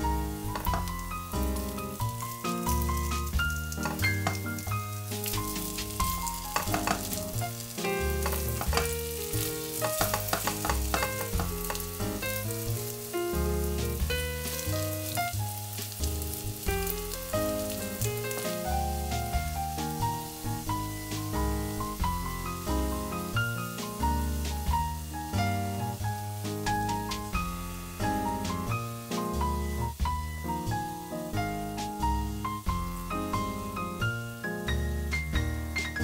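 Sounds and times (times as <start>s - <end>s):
oil sizzling and crackling: 0.0s - 36.0s
piano music: 0.0s - 36.0s.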